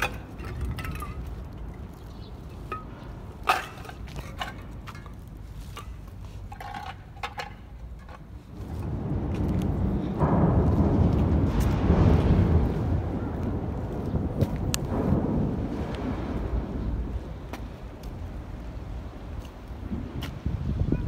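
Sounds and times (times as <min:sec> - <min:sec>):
metal cans clinking: 0:00.0 - 0:01.3, 0:02.6 - 0:08.3
low rumble: 0:08.4 - 0:20.7.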